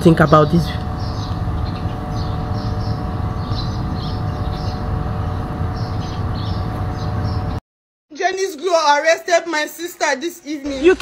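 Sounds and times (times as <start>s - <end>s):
mechanical rumble with low hum: 0.0s - 7.6s.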